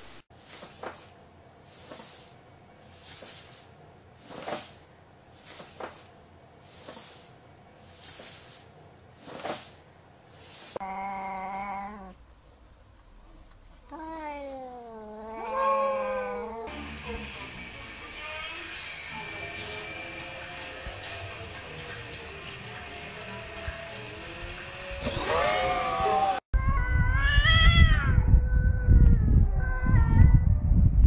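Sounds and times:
soft swishing: 0.3s - 10.8s
cat yowling: 14.0s - 16.7s.

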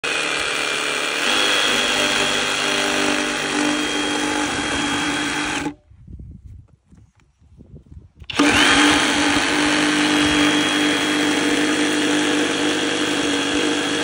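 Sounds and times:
reciprocating saw cutting wood: 0.0s - 5.8s, 8.3s - 14.0s.

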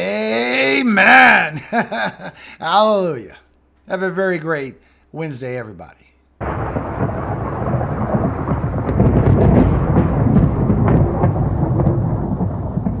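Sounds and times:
rolling thunder: 6.4s - 13.0s.

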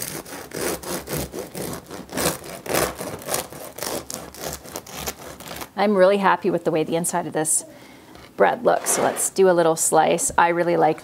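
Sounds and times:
bread knife sawing through crust: 0.0s - 5.7s.

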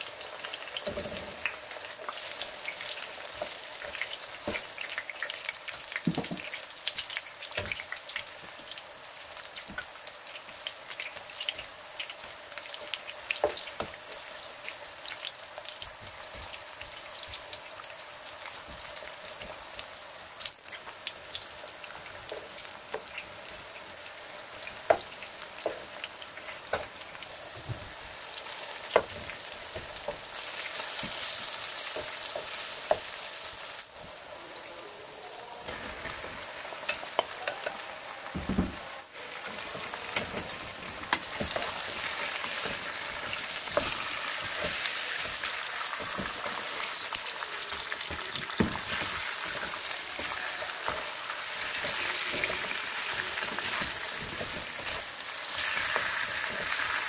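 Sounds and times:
potatoes sizzling in hot oil: 0.0s - 57.0s
wooden spatula knocking pan: 6.0s - 6.6s.

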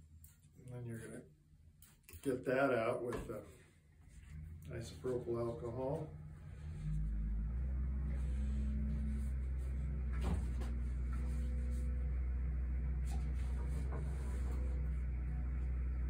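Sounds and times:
steady low hum: 0.0s - 16.0s
light knocks and rustles: 9.4s - 12.0s.

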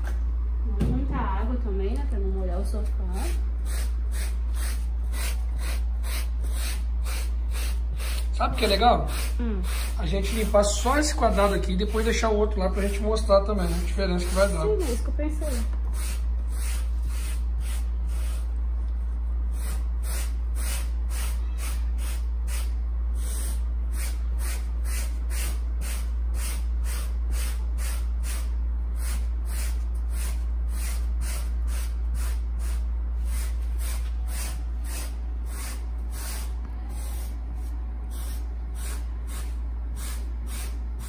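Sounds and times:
steady low hum: 0.0s - 41.0s
brush scrubbing fabric: 8.6s - 15.0s.

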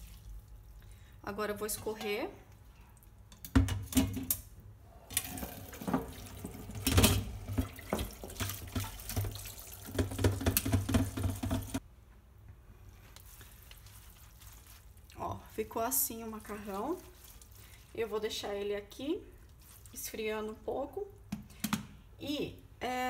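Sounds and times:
water splashing into a colander: 0.0s - 0.8s, 5.1s - 11.8s
bowl knocking on colander: 9.9s - 11.8s.

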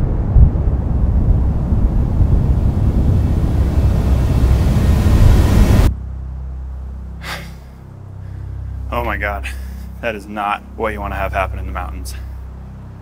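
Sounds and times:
rough rushing rumble: 0.0s - 7.0s
steady low hum: 0.0s - 13.0s.

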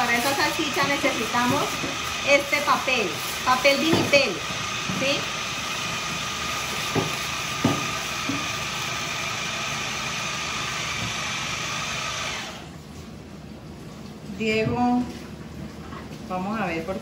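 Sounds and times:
kitchen appliance whirring: 0.0s - 12.8s.

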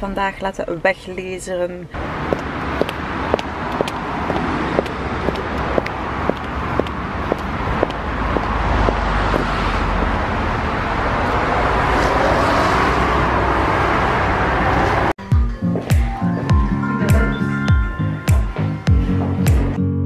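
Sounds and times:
road traffic noise: 1.8s - 19.9s
car passing by: 2.0s - 15.1s
footsteps on paving stones: 2.2s - 10.2s
music: 15.2s - 20.0s.

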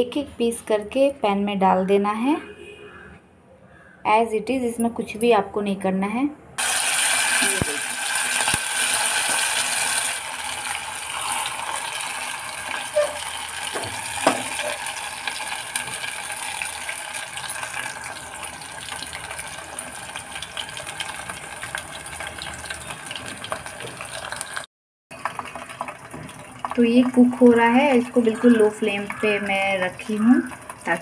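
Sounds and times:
chicken sizzling in hot oil: 6.6s - 31.0s.

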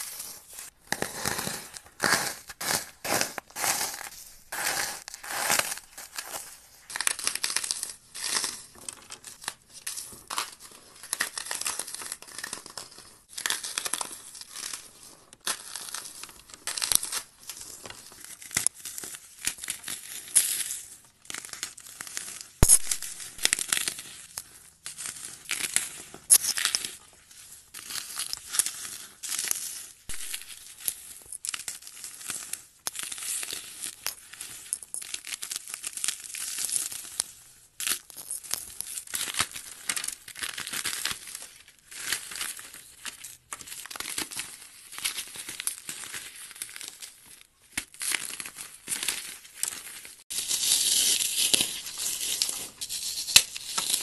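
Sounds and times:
foam crunching in hands: 0.1s - 8.4s.

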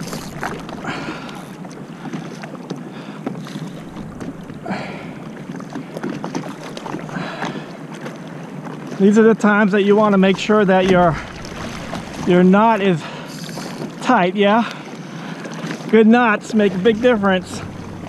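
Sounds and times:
small waves slapping: 0.0s - 18.0s
water lapping against board: 0.0s - 18.0s
wind buffeting microphone: 10.2s - 13.1s.

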